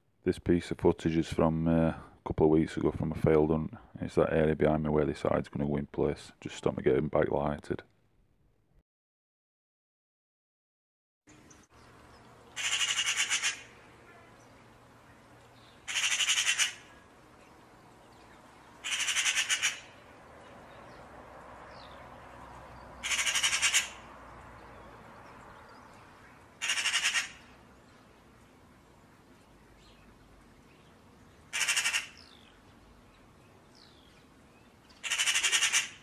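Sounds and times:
crow cawing: 12.6 - 13.7, 15.9 - 16.9, 18.8 - 20.0, 23.0 - 24.0, 26.6 - 27.5, 31.5 - 32.2, 35.0 - 36.0.

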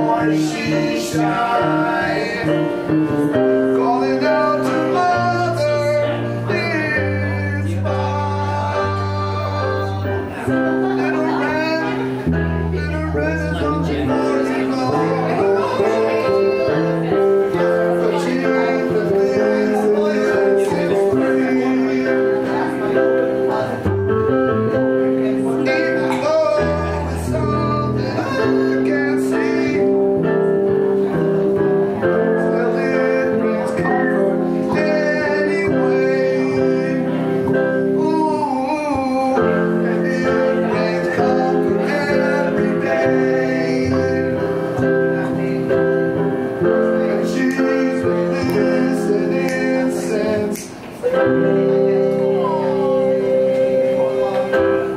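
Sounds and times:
electric keyboard chords: 0.0 - 54.9
person singing: 0.0 - 54.9
strummed acoustic guitar: 0.0 - 54.9.

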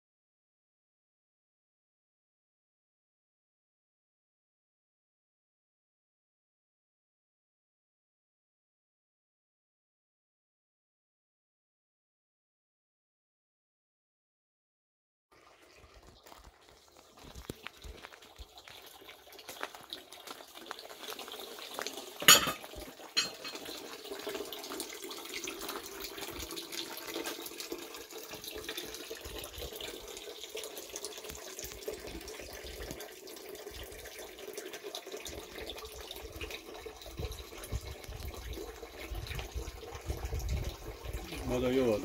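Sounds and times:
water splashing on plastic sheet: 15.4 - 23.0.

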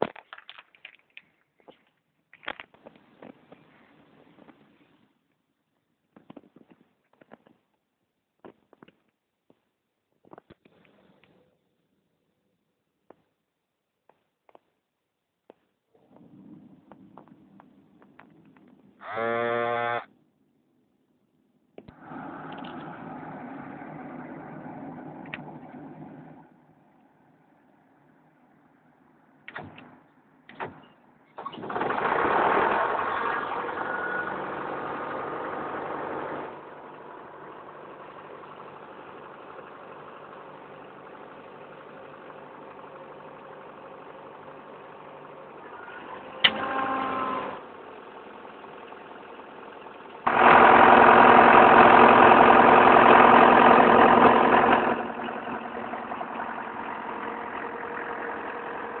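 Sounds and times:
air compressor diesel engine: 16.0 - 20.1, 21.8 - 59.0.

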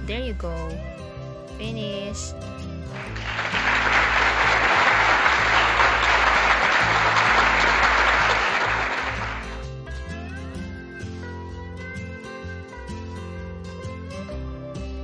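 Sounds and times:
background music: 0.0 - 15.0
applause: 2.9 - 9.7.

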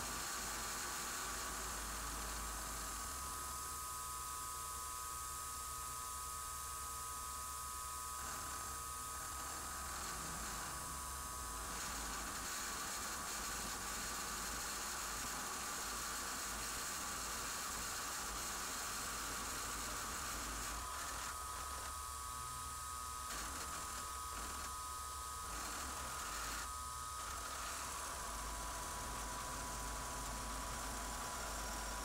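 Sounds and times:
motor whine: 19.3 - 32.0.

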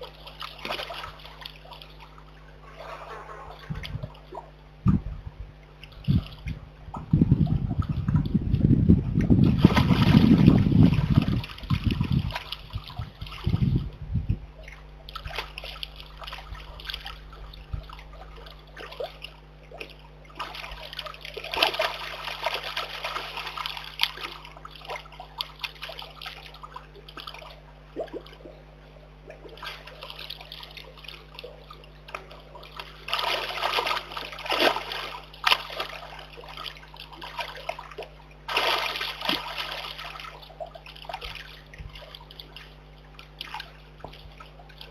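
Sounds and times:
animal splashing in water: 0.0 - 4.5, 9.4 - 13.9, 15.0 - 28.5, 29.2 - 44.9
low rumble: 2.6 - 18.5
water trickling: 5.7 - 44.9.

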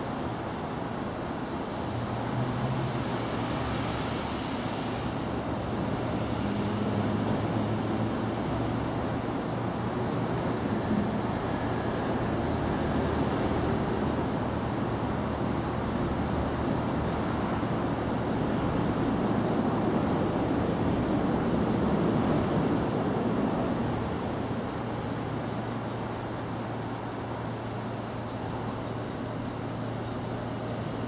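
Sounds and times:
faint high chirp: 12.4 - 12.9.

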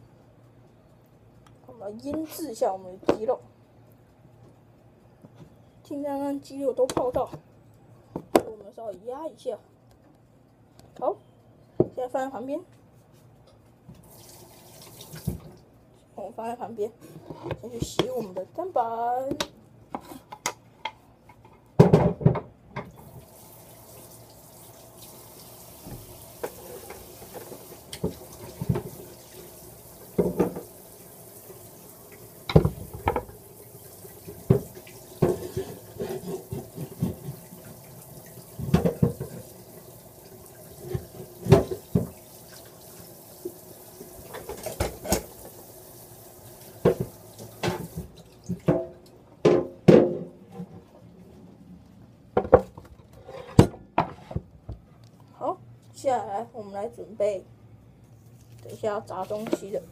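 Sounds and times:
tap water running into sink: 14.0 - 15.6, 22.8 - 49.6
cutting board knocking against sink: 21.8 - 22.9, 30.2 - 30.7, 32.5 - 33.3.

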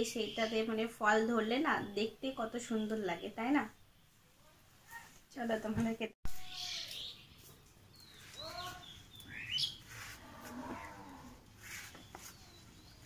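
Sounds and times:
faint animal cries: 10.2 - 11.4.

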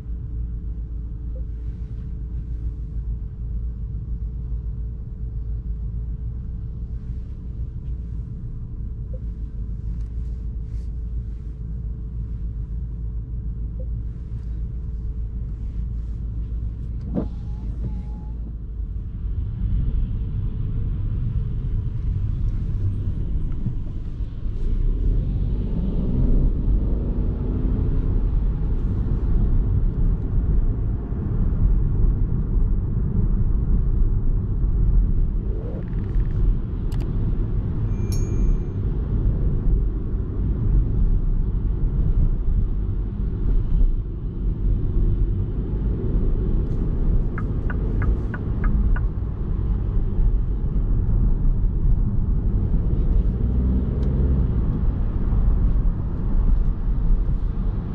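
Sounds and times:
car road and drivetrain rumble: 0.0 - 57.9
brief high beep: 37.9 - 38.8.

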